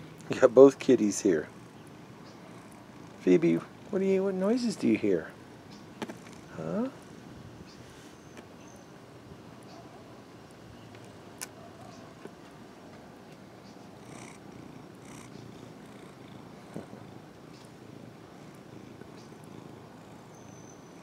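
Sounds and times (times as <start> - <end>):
cat purring: 0.3 - 5.4, 6.0 - 7.4, 13.8 - 20.7.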